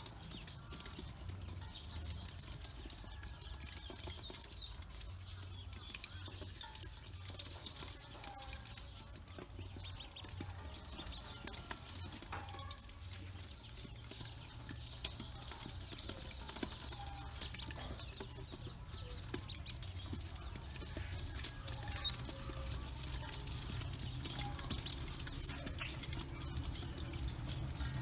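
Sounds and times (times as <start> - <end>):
bills tapping on metal: 0.0 - 28.0
ducklings peeping: 0.0 - 28.0.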